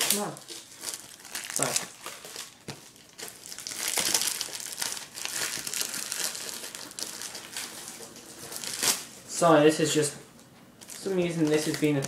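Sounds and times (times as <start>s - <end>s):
cellophane wrap crinkling: 0.0s - 9.5s, 10.8s - 12.0s.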